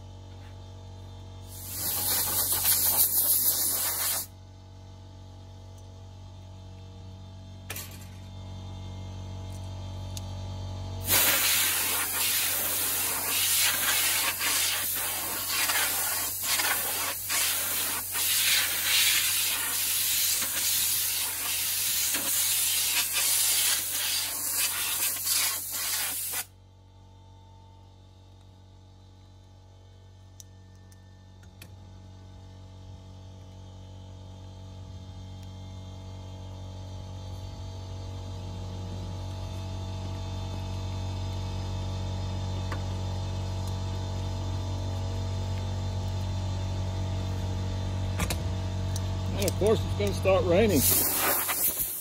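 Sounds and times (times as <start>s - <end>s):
compressed air hissing: 1.5s - 4.3s, 11.0s - 26.5s, 50.0s - 52.0s.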